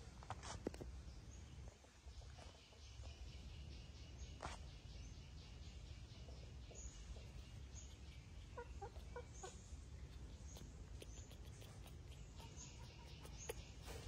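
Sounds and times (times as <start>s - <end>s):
hen clucking: 7.1s - 14.0s.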